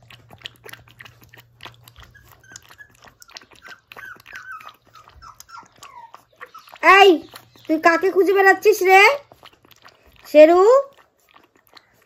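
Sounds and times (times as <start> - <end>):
puppy lapping from a bowl: 0.0 - 12.0
puppy whimpering: 1.8 - 9.1.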